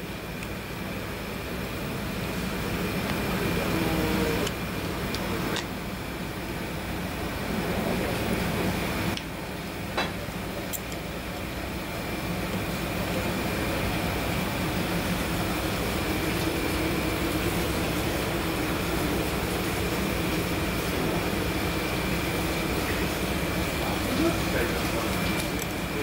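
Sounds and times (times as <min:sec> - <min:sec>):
mechanical hum and hiss: 0:00.0 - 0:26.0.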